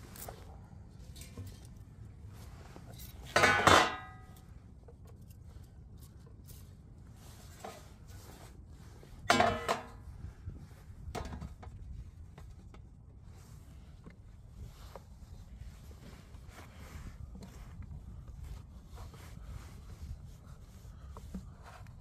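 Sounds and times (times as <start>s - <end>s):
soft handling noises: 0.0s - 22.0s
steel pan clanking: 3.3s - 4.3s, 9.3s - 10.0s.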